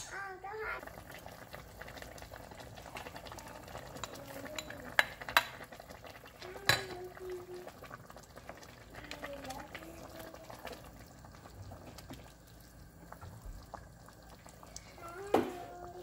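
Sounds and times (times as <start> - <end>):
soup bubbling: 0.0 - 16.0
ladle stirring soup: 0.9 - 16.0.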